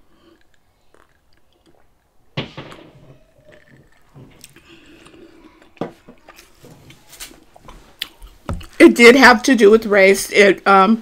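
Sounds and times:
quiet chewing: 0:00.0 - 0:02.2, 0:03.2 - 0:08.8
sipping and swallowing: 0:00.1 - 0:02.2, 0:03.4 - 0:06.5.

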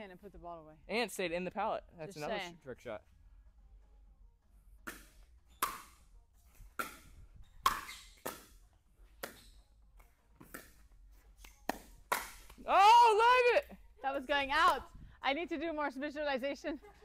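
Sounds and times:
ball bouncing on court: 0:06.7 - 0:08.6.

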